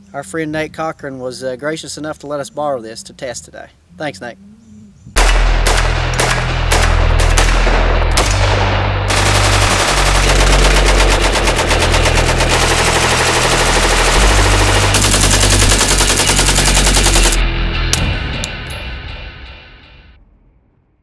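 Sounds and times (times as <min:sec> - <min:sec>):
low bass drone: 0:02.8 - 0:20.8
rifle gunfire: 0:05.2 - 0:17.4.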